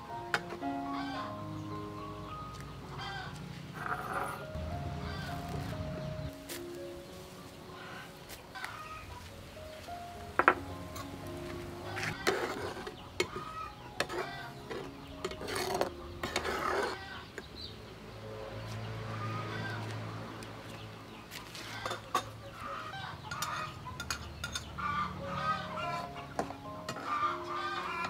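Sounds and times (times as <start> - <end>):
chickens clucking: 0.4 - 17.6, 21.4 - 28.0
metal spatula scraping frying pan: 12.0 - 17.4.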